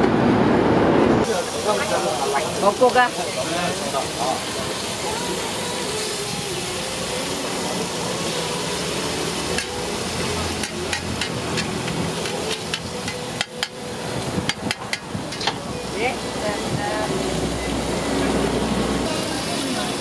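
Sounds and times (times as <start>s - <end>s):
meat sizzling on a griddle: 1.2s - 20.0s.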